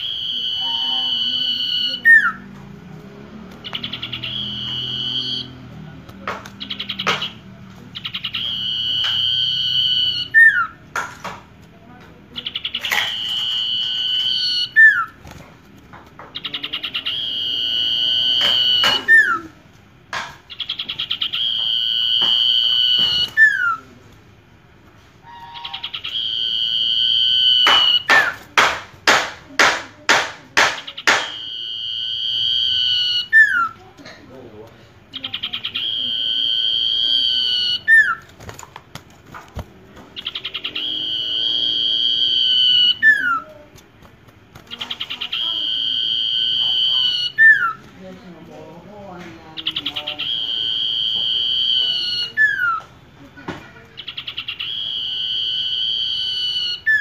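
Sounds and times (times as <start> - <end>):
bird rapid sharp notes: 0.0 - 10.8, 12.3 - 15.4, 16.1 - 19.5, 20.5 - 23.8, 25.2 - 31.6, 39.9 - 43.5
bird singing whistled notes: 3.6 - 5.6.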